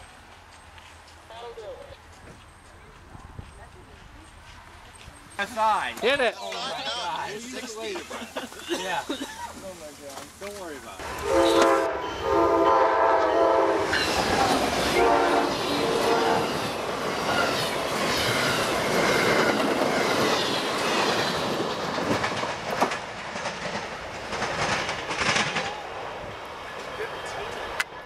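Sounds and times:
train horn blasts: 11.0s - 14.1s, 14.8s - 16.7s
train wheels clattering on rails: 13.9s - 28.0s.

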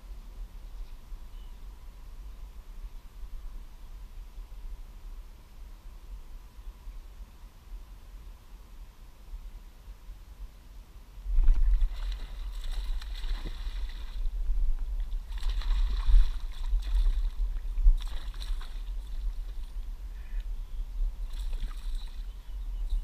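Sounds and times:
wind buffeting microphone: 11.2s - 23.0s.

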